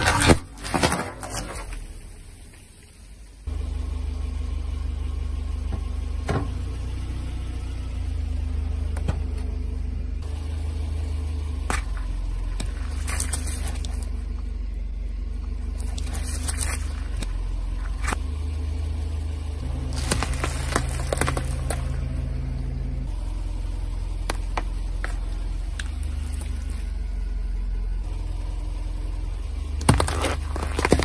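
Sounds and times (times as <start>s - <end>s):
car engine running: 0.0s - 31.0s
objects cracking under tyres: 11.6s - 14.6s, 15.4s - 18.3s, 19.6s - 22.3s, 24.0s - 27.0s, 29.6s - 31.0s.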